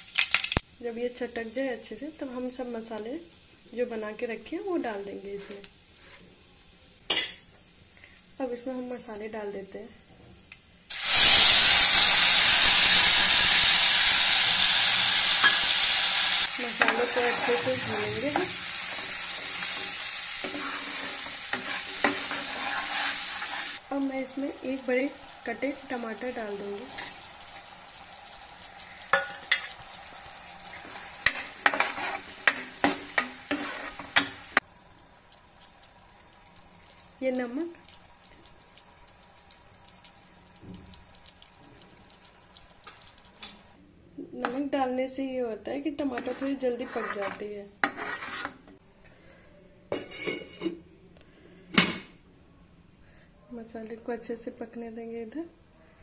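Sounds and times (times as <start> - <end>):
paste sizzling in hot oil: 10.9 - 43.7
metal ladle knocking pan: 29.1 - 29.8.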